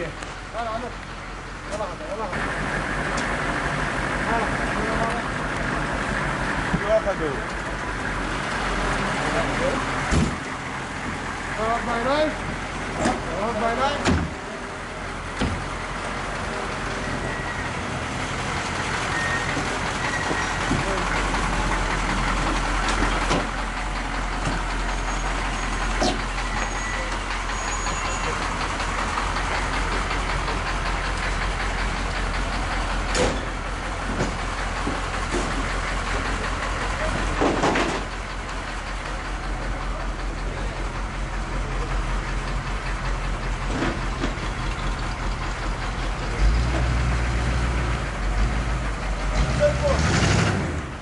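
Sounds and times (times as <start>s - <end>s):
large vehicle engine running: 0.0s - 51.0s.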